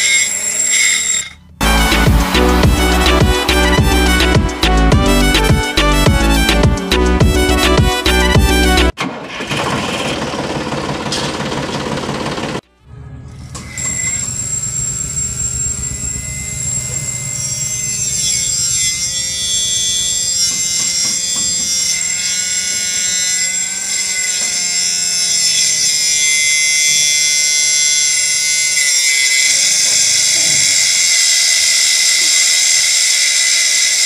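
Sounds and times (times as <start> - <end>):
small electric motor whining: 0.0 - 5.8, 13.3 - 34.0
background music: 1.6 - 9.0.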